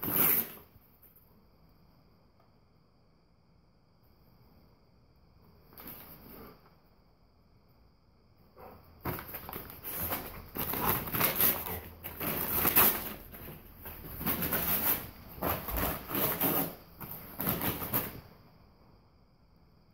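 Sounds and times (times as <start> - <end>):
packing paper crinkling: 9.1 - 18.2.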